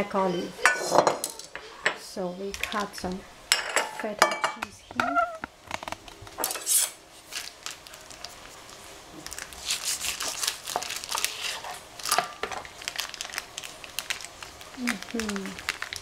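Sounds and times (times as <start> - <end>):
plastic wrapper crinkling: 7.1 - 16.0.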